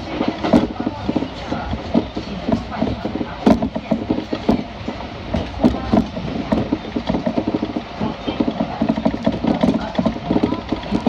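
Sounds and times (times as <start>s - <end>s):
train rumble inside carriage: 0.0s - 11.0s
wheels clattering: 0.0s - 11.0s.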